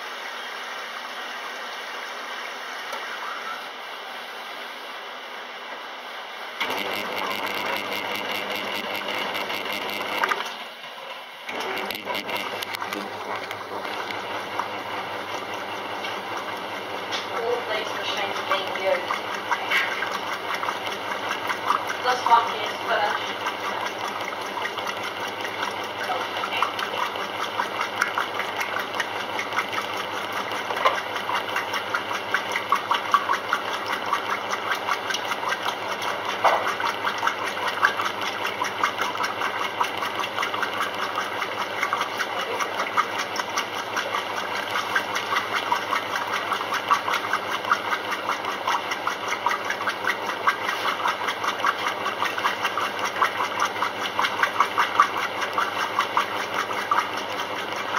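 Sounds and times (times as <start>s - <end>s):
washing machine motor hum: 0.0s - 57.9s
quick mechanical ticks: 11.6s - 14.7s.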